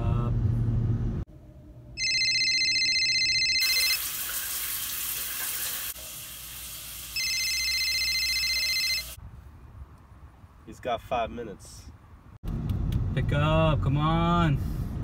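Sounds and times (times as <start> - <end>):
phone electronic ring tone: 2.0 - 4.1, 7.2 - 9.2
running water hissing: 3.7 - 7.2.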